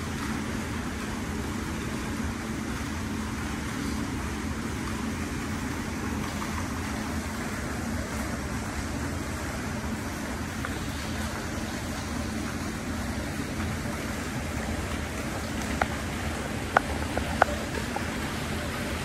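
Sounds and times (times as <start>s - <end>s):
constant low hum: 0.0s - 19.0s.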